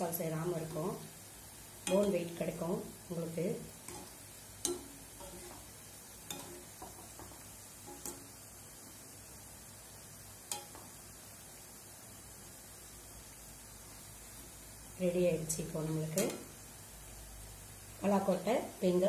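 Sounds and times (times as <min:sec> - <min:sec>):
food deep-frying in oil: 0:00.0 - 0:19.0
strainer clinking against pan: 0:06.3 - 0:07.0.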